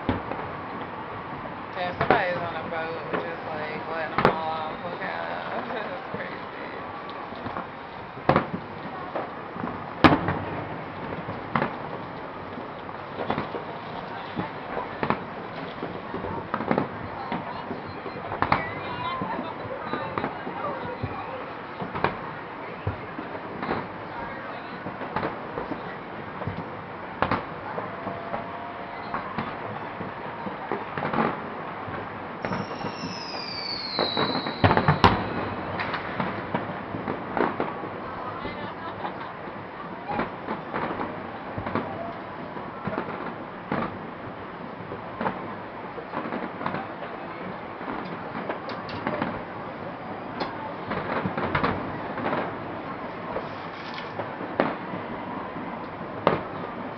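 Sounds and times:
background noise: 0:00.0 - 0:56.9
fireworks bangs and cracks: 0:00.0 - 0:56.9
firework shells bursting: 0:31.0 - 0:37.8
faint firework pop: 0:32.4 - 0:36.7.

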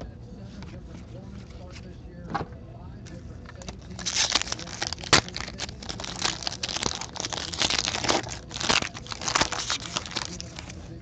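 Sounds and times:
foil wrapper crinkling being torn: 0:03.6 - 0:10.9.

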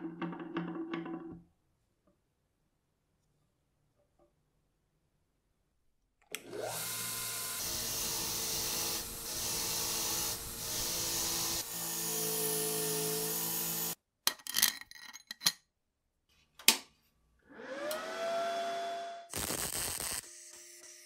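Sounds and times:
bench grinder running: 0:06.5 - 0:14.0.

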